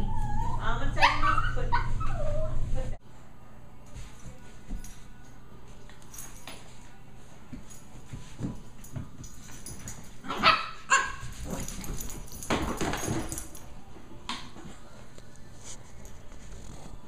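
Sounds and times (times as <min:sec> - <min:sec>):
puppy yapping: 0:00.0 - 0:02.6, 0:10.3 - 0:11.3
rustling and scuffling: 0:03.8 - 0:13.7.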